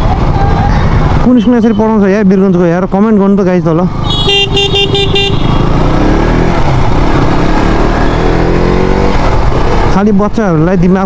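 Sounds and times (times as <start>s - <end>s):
road traffic noise: 0.0s - 11.0s
vehicle horn: 4.1s - 5.6s
engine rising in pitch: 5.5s - 9.4s.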